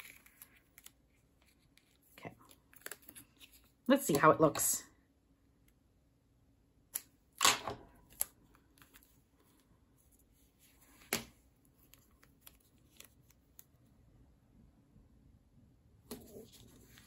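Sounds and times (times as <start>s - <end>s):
paper rustling: 16.1s - 17.0s.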